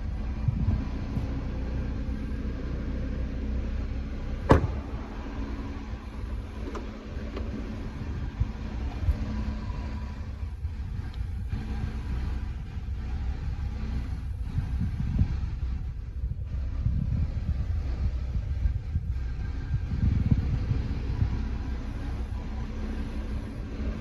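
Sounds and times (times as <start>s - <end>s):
low rumble: 0.0s - 24.0s
car door thump: 4.4s - 5.3s.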